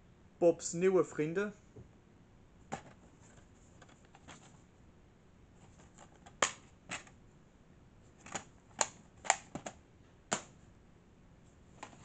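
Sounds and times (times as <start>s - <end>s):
plastic cases clacking: 5.7s - 7.1s, 8.2s - 10.6s.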